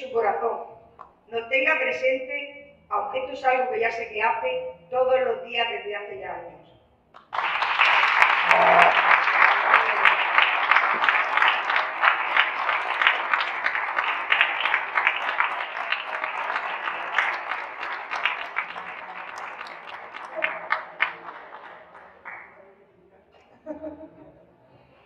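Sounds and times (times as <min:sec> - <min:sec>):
audience applauding: 0:07.2 - 0:22.6.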